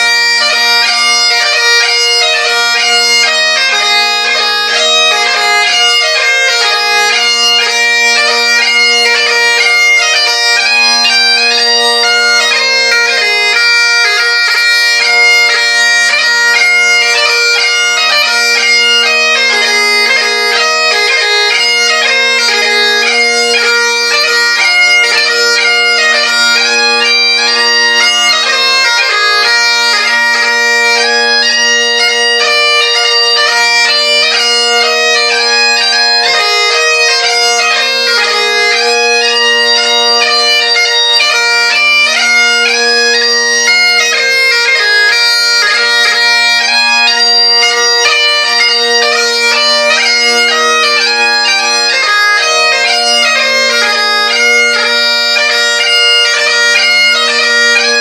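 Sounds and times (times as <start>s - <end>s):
bagpipe chanter melody: 0.0s - 58.0s
bagpipe drones: 0.0s - 58.0s.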